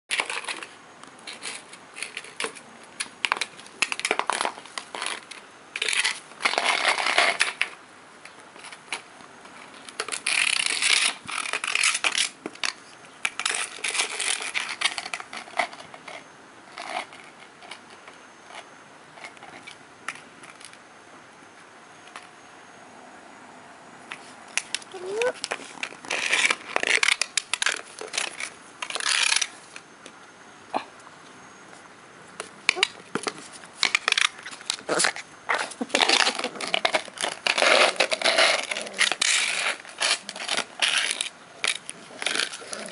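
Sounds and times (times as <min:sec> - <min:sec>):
flower pot scraping on paving: 0:00.1 - 0:02.7, 0:03.3 - 0:07.8, 0:24.1 - 0:29.8, 0:32.4 - 0:42.9.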